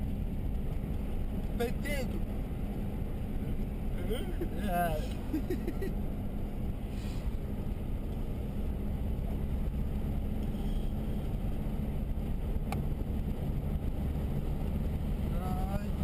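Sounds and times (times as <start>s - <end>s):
car road and engine noise: 0.0s - 16.0s.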